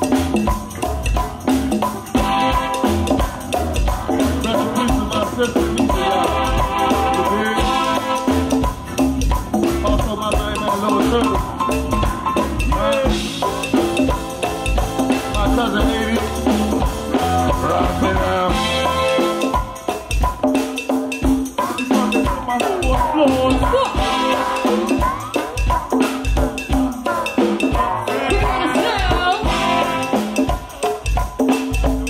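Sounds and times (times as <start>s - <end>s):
bass line: 0.0s - 19.8s, 27.7s - 30.6s
drum kit: 0.0s - 32.0s
hand percussion: 0.0s - 32.0s.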